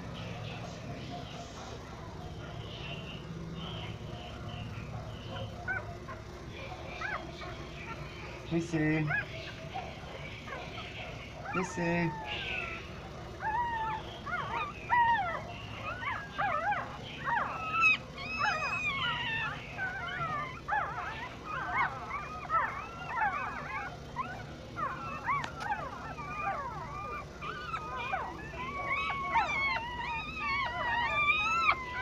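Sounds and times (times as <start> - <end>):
puppies squeaking and whimpering: 0.0 - 32.0.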